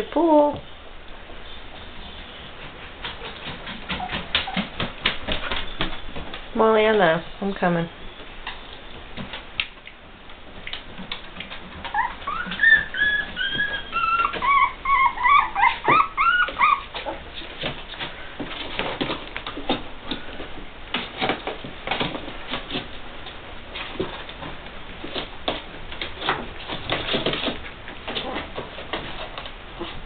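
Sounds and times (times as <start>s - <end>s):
puppies scratching on plastic: 1.7s - 7.2s, 8.2s - 30.0s
puppies whimpering: 11.8s - 17.3s.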